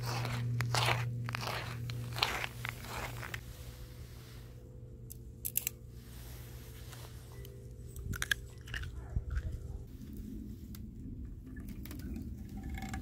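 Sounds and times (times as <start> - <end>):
footsteps crunching on icy snow: 0.0 - 4.4.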